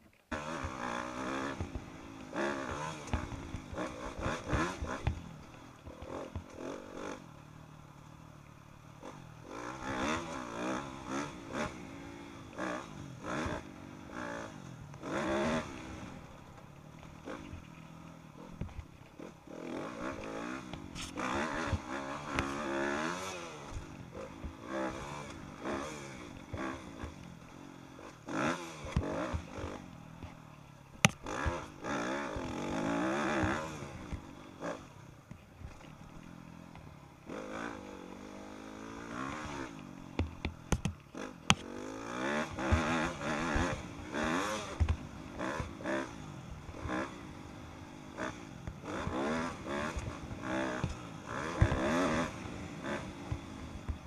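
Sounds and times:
dirt bike engine revving: 0:00.3 - 0:54.0
bike clattering over bumps: 0:48.7 - 0:54.0.

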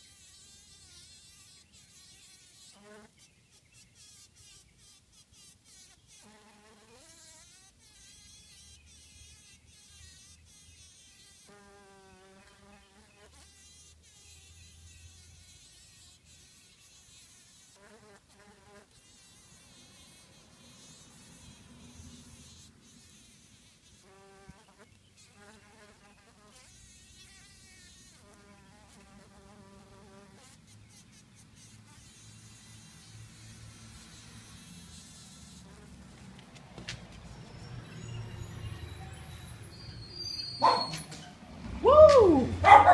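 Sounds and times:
bee buzzing faintly: 0:00.0 - 0:39.7.

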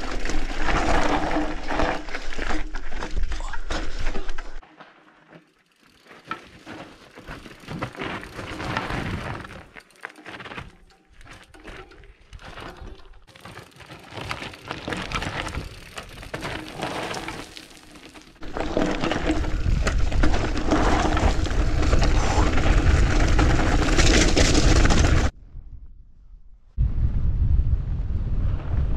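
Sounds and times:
bike rattling: 0:00.0 - 0:25.3
bike tyres crunching over gravel: 0:00.0 - 0:25.3
wind buffeting microphone: 0:25.3 - 0:28.9.

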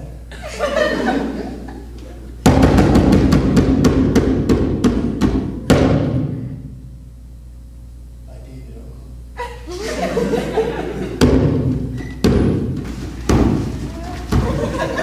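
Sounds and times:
big ringing drum hit: 0:02.4 - 0:06.8
fast loud drum hits: 0:02.4 - 0:06.8, 0:11.2 - 0:14.8.

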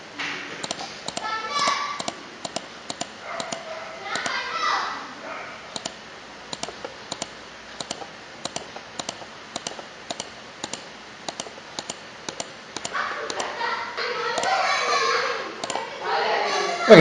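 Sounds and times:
computer mouse clicking: 0:00.6 - 0:04.4, 0:05.7 - 0:13.5, 0:14.3 - 0:14.6, 0:15.6 - 0:15.9.

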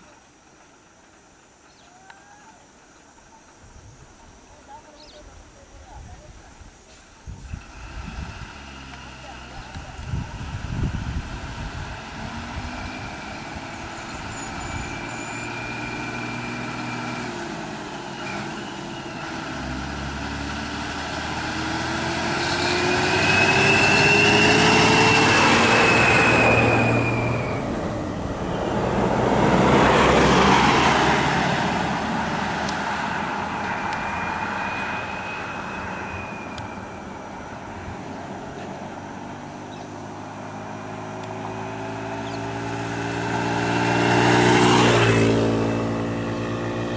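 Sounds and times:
vehicles passing close: 0:00.0 - 0:46.9
vehicle engines running: 0:06.6 - 0:46.9
thin high whistle: 0:12.8 - 0:17.0, 0:22.4 - 0:27.8, 0:33.6 - 0:37.6.

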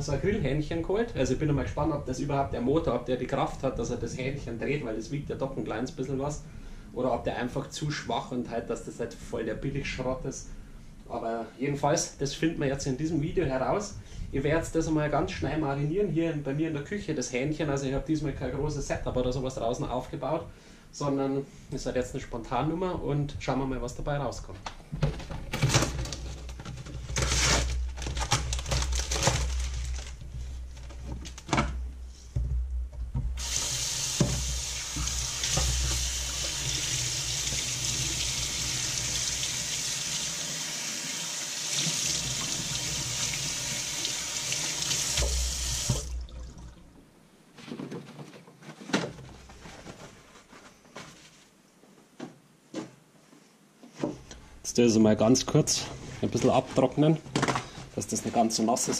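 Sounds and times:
towel rustling: 0:26.4 - 0:32.3, 0:49.2 - 0:51.6
tap running into metal sink: 0:33.2 - 0:38.3, 0:44.8 - 0:46.3.

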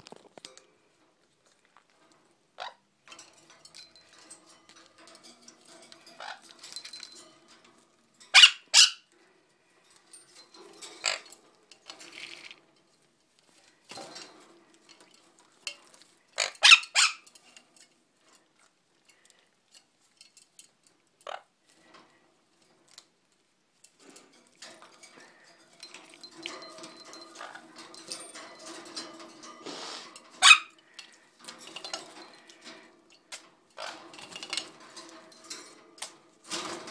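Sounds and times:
parrot squawking: 0:08.3 - 0:09.1, 0:16.4 - 0:17.2, 0:30.4 - 0:30.8.

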